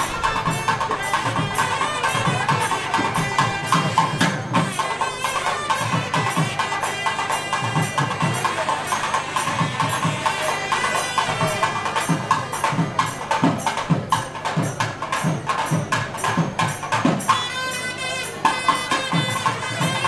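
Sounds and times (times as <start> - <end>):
drum playing sharp cracks: 0.0 - 20.0.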